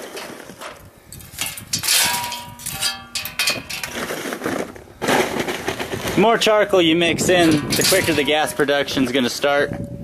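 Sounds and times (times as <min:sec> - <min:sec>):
wood chunks clattering into metal reactor: 0:00.2 - 0:04.1, 0:07.2 - 0:09.5
pieces ringing on steel: 0:01.4 - 0:03.9, 0:07.4 - 0:09.0.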